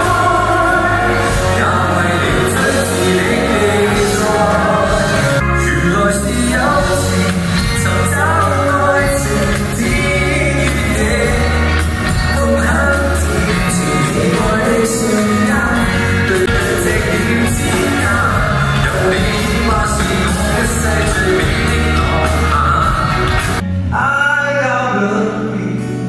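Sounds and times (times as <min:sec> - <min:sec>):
backing band playing: 0:00.0 - 0:23.9
man singing pop song: 0:00.0 - 0:26.0.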